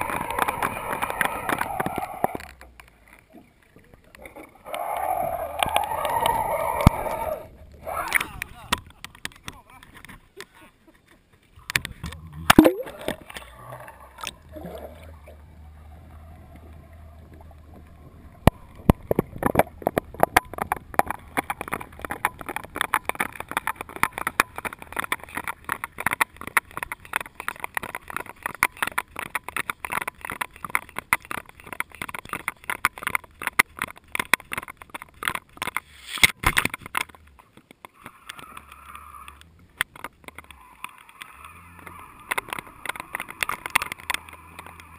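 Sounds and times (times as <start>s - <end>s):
low underwater hum: 0.0s - 9.0s, 11.6s - 28.6s
underwater crackle of clicks: 0.0s - 44.9s.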